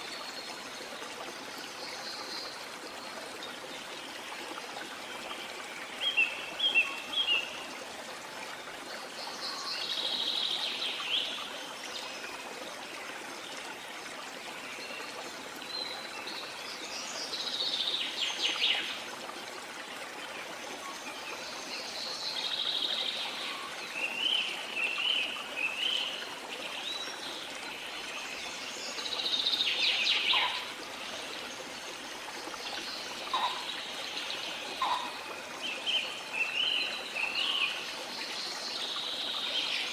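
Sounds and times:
stream running: 0.0s - 39.9s
small birds chirping: 26.9s - 32.0s, 32.6s - 37.8s.

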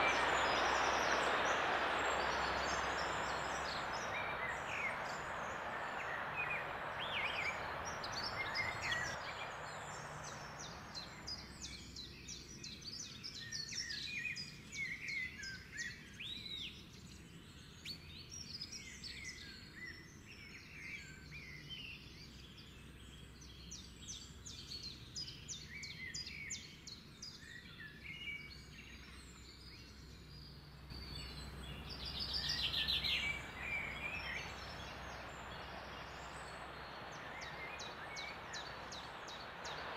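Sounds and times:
steady hiss: 0.0s - 12.0s, 30.9s - 39.9s
birds singing and chirping: 0.0s - 12.1s, 31.0s - 39.9s.

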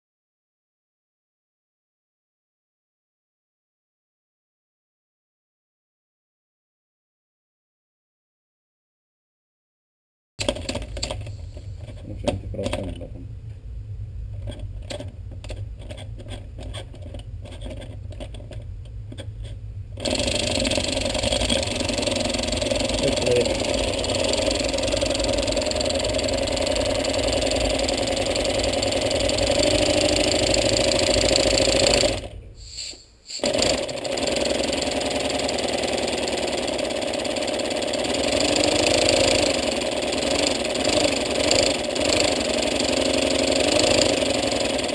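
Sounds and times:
flywheel clicks: 20.0s - 32.3s, 33.4s - 44.9s
air engine hissing and pulsing: 20.0s - 44.9s.

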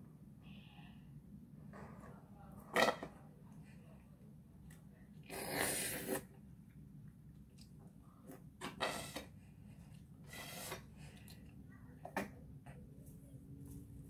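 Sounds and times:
slurping through a straw: 5.3s - 6.3s, 10.2s - 10.9s.

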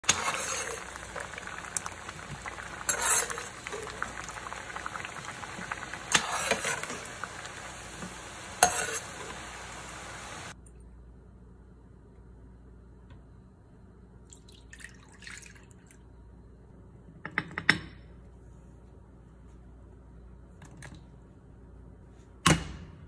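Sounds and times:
metal spoon scraping a pan: 0.0s - 1.3s, 2.7s - 4.0s, 6.0s - 7.2s, 8.5s - 9.6s
water bubbling at a boil: 0.0s - 10.6s.

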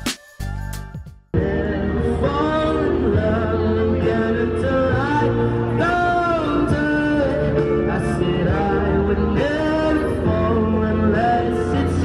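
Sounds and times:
drums: 0.0s - 2.4s
live band playing: 0.0s - 2.4s
low bass notes: 0.0s - 12.0s
man singing into a microphone: 1.4s - 12.0s.

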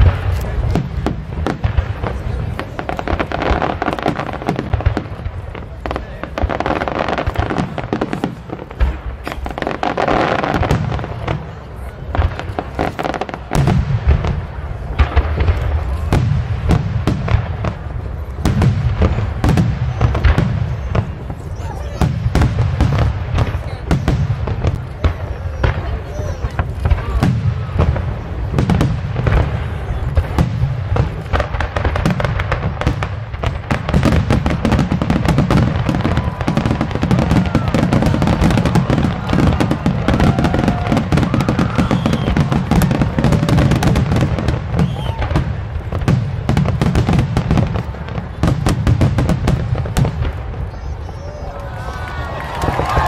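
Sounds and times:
firework bangs and crackles: 0.0s - 53.0s.

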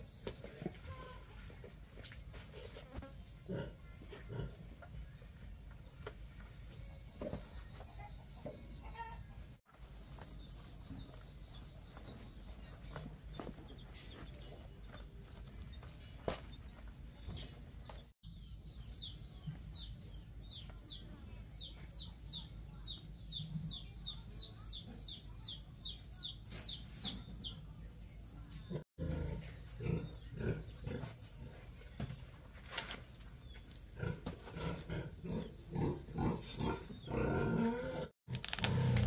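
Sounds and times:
bird chirping: 5.0s - 31.0s.

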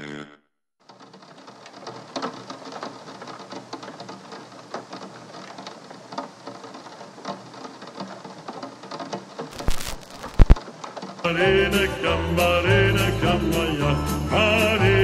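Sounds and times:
rain pattering: 0.8s - 11.3s.

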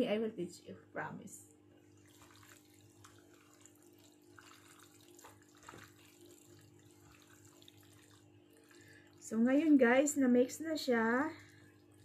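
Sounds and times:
steady low hum: 0.0s - 12.0s
wet squishing of hands in marinade: 1.9s - 9.5s.

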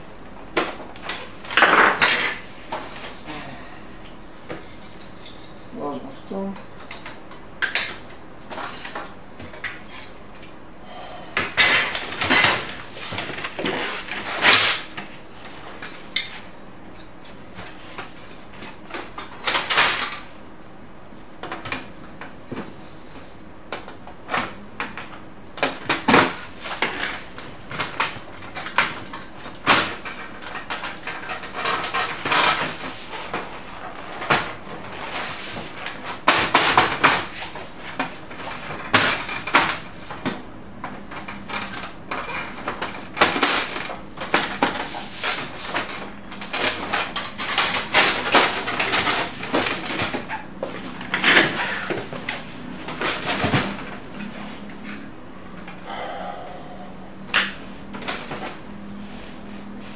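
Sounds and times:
plastic covers clicking and scraping: 0.3s - 3.1s, 23.7s - 55.8s.

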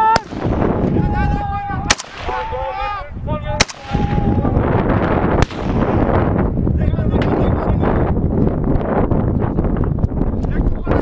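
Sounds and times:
long drawn-out shouts: 0.0s - 0.3s
gunshots echoing: 0.0s - 0.8s, 1.8s - 2.6s, 3.6s - 4.2s, 5.3s - 6.1s.

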